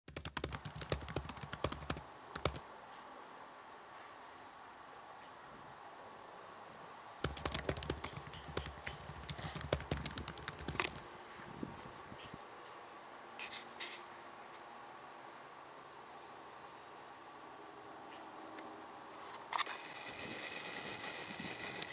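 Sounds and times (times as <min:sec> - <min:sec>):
keyboard key clicks: 0:00.1 - 0:02.6, 0:07.2 - 0:11.0.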